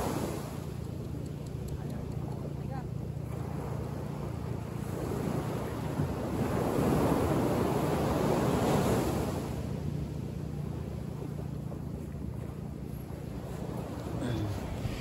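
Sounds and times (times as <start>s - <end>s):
wave breaking on sandy beach: 13.4s - 15.0s.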